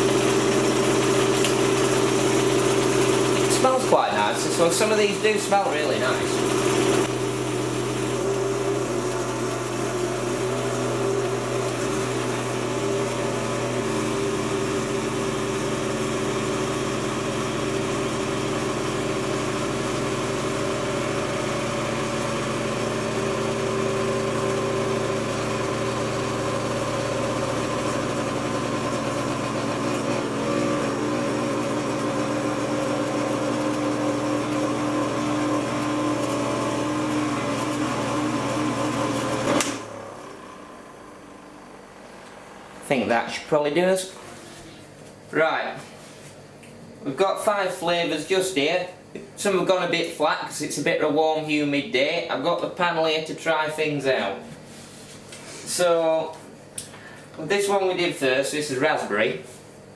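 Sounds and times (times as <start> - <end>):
cotton candy machine motor humming: 0.0 - 45.9.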